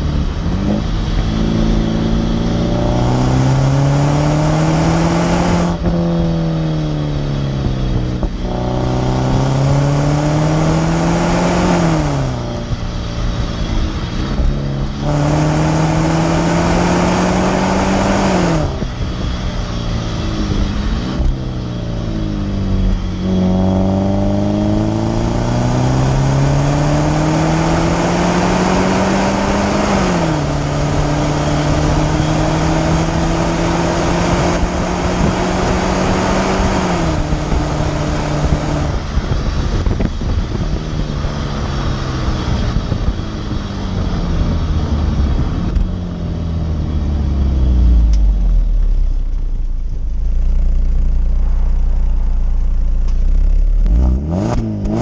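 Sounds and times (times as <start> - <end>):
car exhaust engine note: 0.0 - 55.0
deep exhaust rumble: 0.0 - 55.0.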